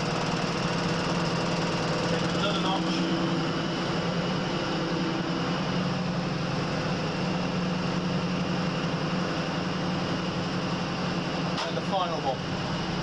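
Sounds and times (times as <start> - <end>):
diesel engine drone: 0.0 - 13.0
rush of moving train: 1.9 - 8.5.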